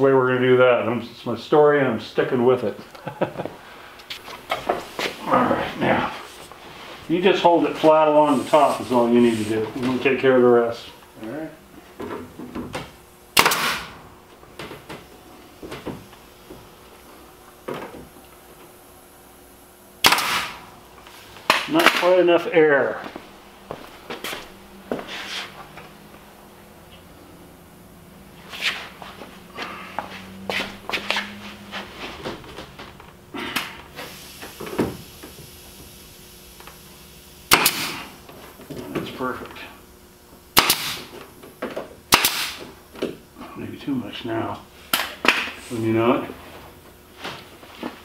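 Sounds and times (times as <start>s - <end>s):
pneumatic nail gun firing: 13.3s - 14.0s, 20.0s - 20.7s, 33.5s - 35.9s, 37.4s - 38.2s, 40.5s - 41.2s, 42.1s - 42.8s
air hiss: 33.4s - 38.2s.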